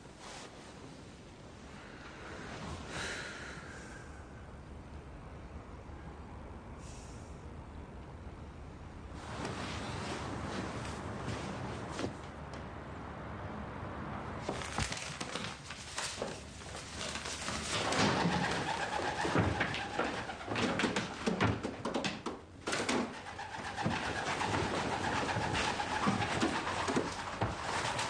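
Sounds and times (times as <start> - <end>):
pigeon wings flapping: 14.5 - 28.0.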